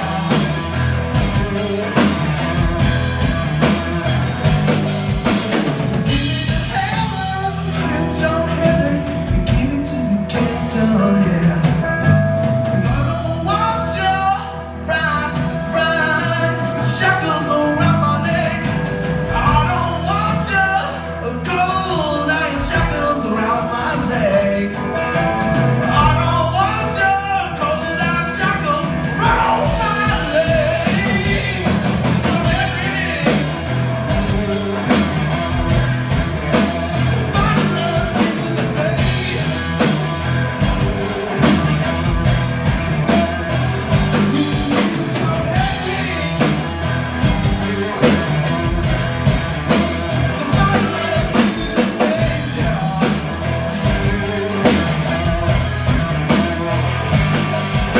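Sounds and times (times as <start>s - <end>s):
drum kit: 0.0s - 57.9s
electric bass: 0.0s - 57.9s
electric guitar: 0.0s - 57.9s
person singing: 5.6s - 57.9s.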